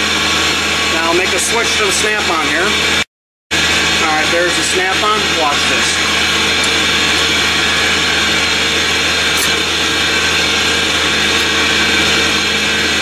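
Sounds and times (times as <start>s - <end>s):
air compressor drone: 0.0s - 13.0s.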